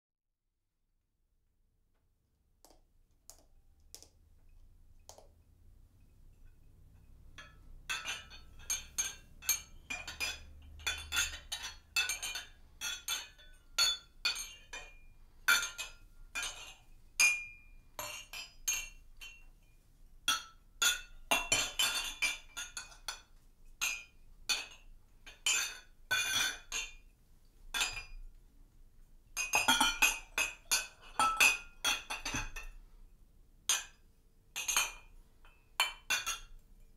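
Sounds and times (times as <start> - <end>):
glass and metal objects clinking: 7.4 - 19.7, 20.3 - 27.0, 27.7 - 28.2, 29.4 - 32.8, 34.6 - 36.6.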